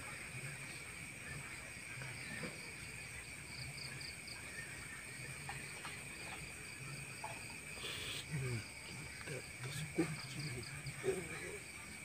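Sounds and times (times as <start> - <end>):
crickets trilling: 0.0 - 12.0
short insect chirps: 3.6 - 11.6.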